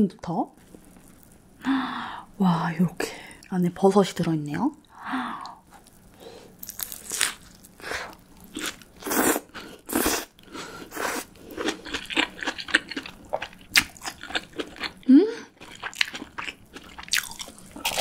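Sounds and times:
person chewing food crunchily: 0:05.4 - 0:18.0.

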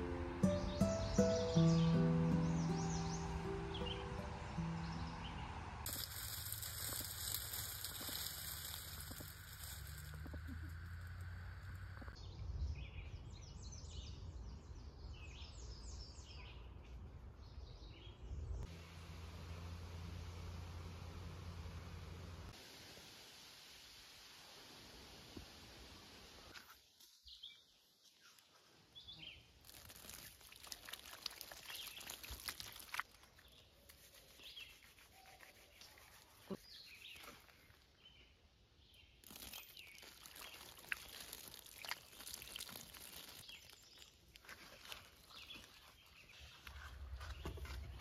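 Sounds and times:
low hiss: 0:00.0 - 0:12.2, 0:18.7 - 0:27.4.

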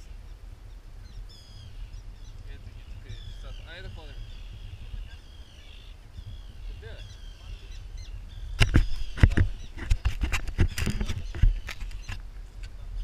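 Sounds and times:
birds calling faintly: 0:00.0 - 0:13.0
wind rumbling on microphone: 0:00.0 - 0:13.0
camera being bumped: 0:08.6 - 0:12.2.

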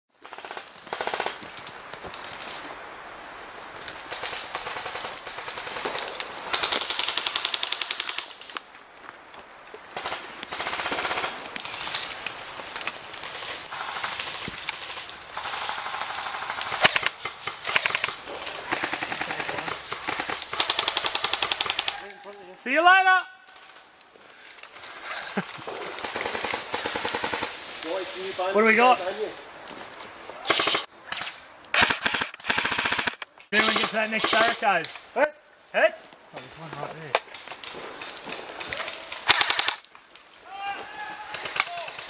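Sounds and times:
airsoft rifles firing bursts: 0:13.7 - 0:22.0, 0:26.0 - 0:27.6, 0:30.5 - 0:30.9, 0:31.7 - 0:34.7, 0:38.8 - 0:39.9.

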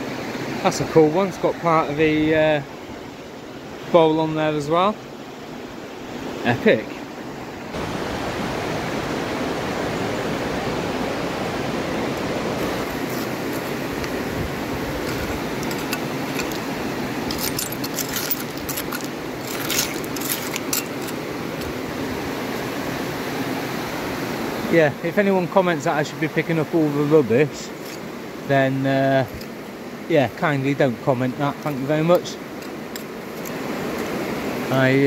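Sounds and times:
river water rushing: 0:00.0 - 0:35.0
small hard pieces clinking: 0:15.0 - 0:21.7.

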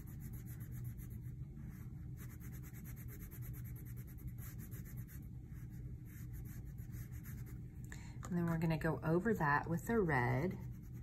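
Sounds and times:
crayon scribbling on paper: 0:00.0 - 0:07.6, 0:10.5 - 0:11.0
low steady hum: 0:00.0 - 0:11.0.

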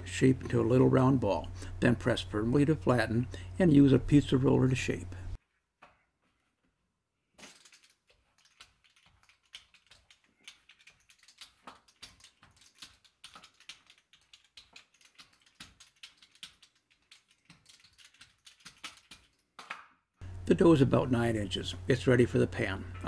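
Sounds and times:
dough roller clicking and tapping: 0:08.4 - 0:19.3.

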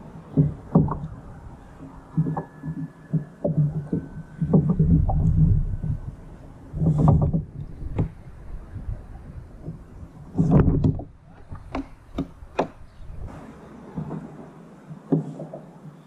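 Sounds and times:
dull thump: 0:09.6 - 0:14.3.

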